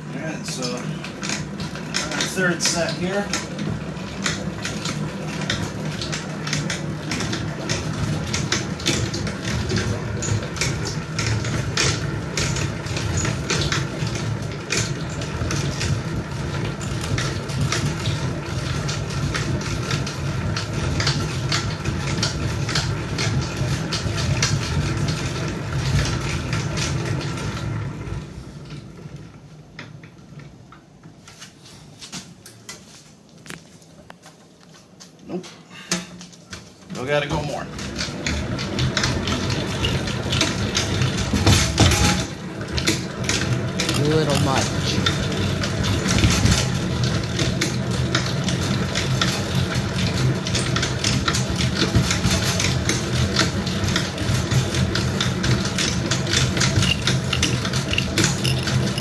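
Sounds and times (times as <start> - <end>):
honey extractor drum rumbling: 0.0 - 30.2, 36.5 - 59.0
crank gears clicking: 42.8 - 45.3, 55.8 - 59.0.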